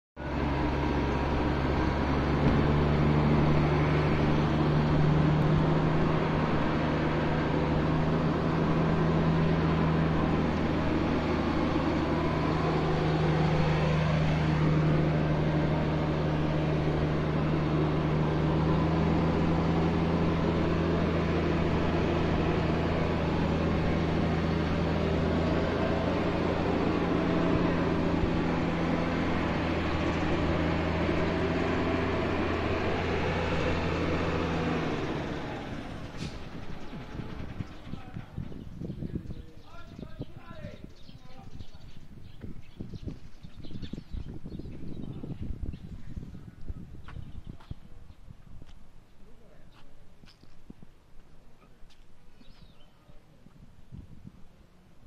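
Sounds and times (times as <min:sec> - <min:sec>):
diesel truck engine idling: 0:00.2 - 0:42.5.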